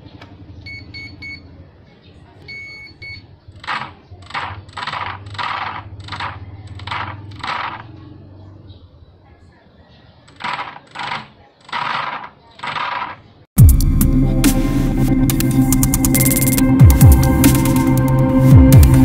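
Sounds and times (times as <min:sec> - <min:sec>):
electric motor whirring rattle: 0:03.6 - 0:07.9.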